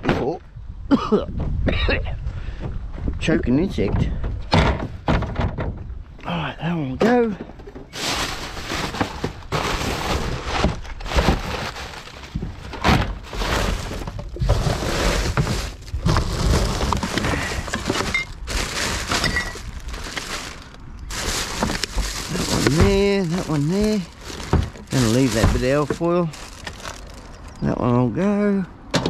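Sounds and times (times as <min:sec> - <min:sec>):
glass bottles and cans clinking: 0:17.7 - 0:19.7.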